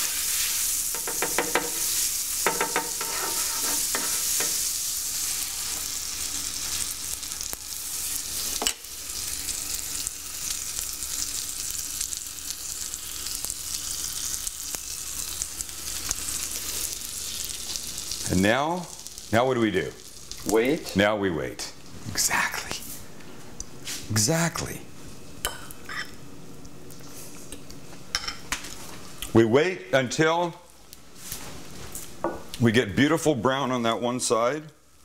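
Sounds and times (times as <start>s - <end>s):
butter sizzling on griddle: 0.0s - 18.3s.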